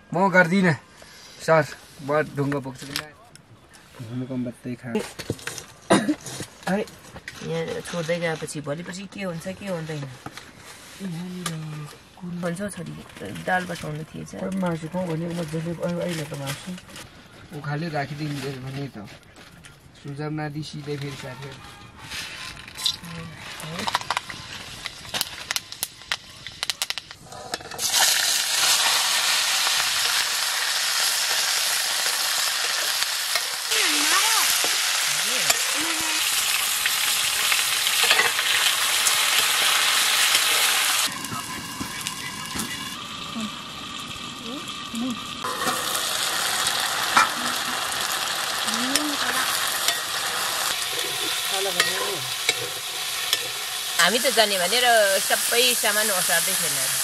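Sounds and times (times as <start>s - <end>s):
crackles: 5.0s - 57.0s
food sizzling in wok: 23.3s - 57.0s.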